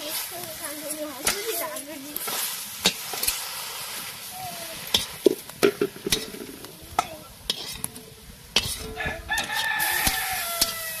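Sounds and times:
oil sizzling: 0.0 - 11.0
metal spatula scraping iron pan: 1.2 - 3.5, 4.8 - 11.0
rooster crowing: 9.0 - 11.0.

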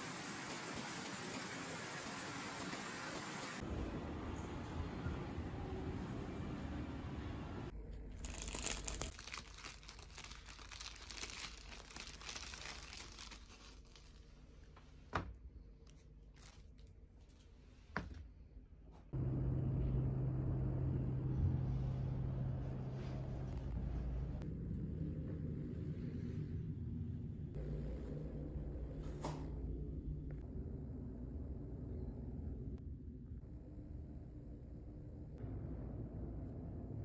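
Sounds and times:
plastic bag crinkling: 8.1 - 14.6
low hum: 18.9 - 37.0.

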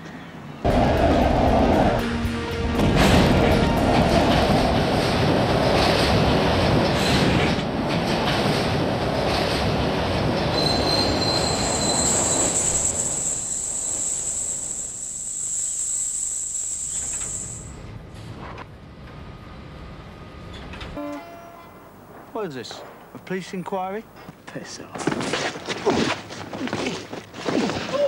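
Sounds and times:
train running past: 0.3 - 24.9
high-pitched wheel squeal: 10.5 - 17.8.

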